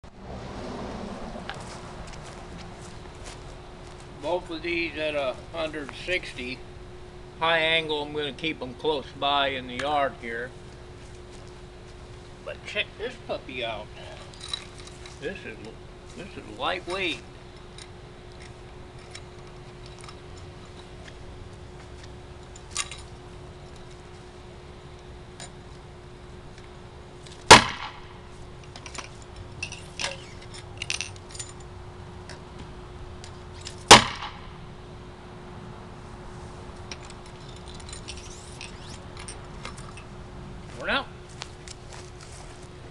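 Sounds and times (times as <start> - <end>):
faint steady hum: 1.0 - 42.9
mortar firing pop: 27.5 - 28.0, 33.9 - 34.4.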